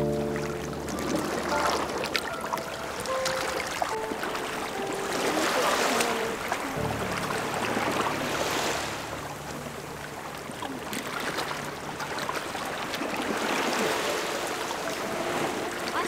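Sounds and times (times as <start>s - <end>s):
low steady hum: 0.0s - 3.2s
seawater splashing against rocks: 0.0s - 16.0s.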